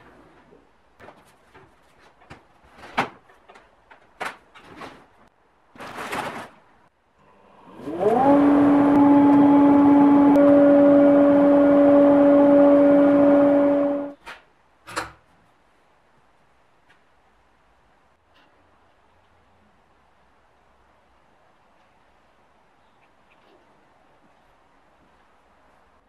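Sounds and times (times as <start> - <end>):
knocks and handling rustle: 0.0 - 6.9
dust extractor running: 7.2 - 14.2.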